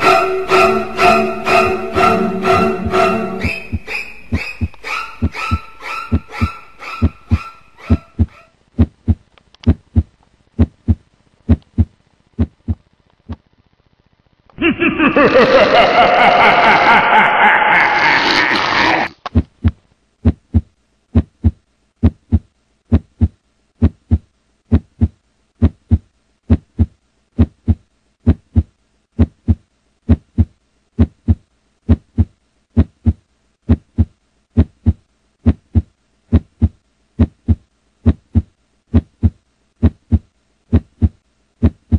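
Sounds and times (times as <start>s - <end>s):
heartbeat-like low thumps: 3.6s - 12.8s, 19.4s - 41.9s
loud noise: 14.6s - 19.1s.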